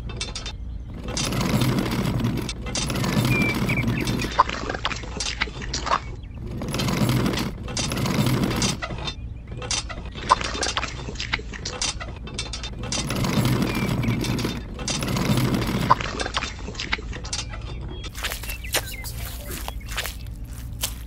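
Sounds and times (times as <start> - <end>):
toy wheelbarrow scraping on gravel: 0.9 - 5.0, 6.4 - 9.0, 12.8 - 16.6, 18.1 - 21.0.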